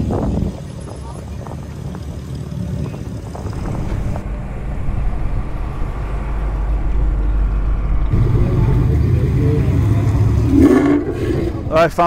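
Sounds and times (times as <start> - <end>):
car engines driving slowly past: 0.0 - 12.0.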